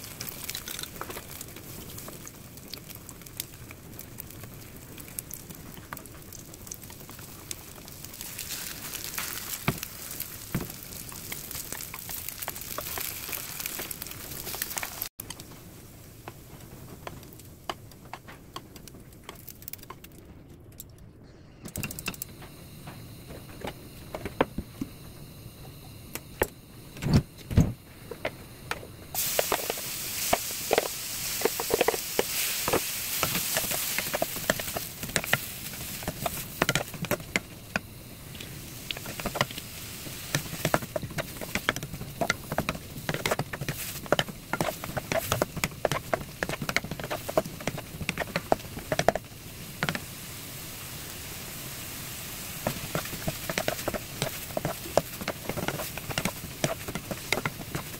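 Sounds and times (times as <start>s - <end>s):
food sizzling in a frying pan: 0.0s - 17.7s, 29.1s - 57.9s
spatula scraping and tapping pan: 29.2s - 37.5s, 40.3s - 50.0s, 52.6s - 57.9s.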